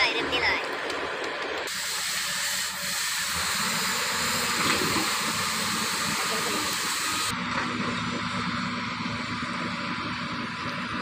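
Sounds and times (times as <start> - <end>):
excavator diesel engine running: 0.0 - 11.0
loud steady hiss: 1.7 - 7.3.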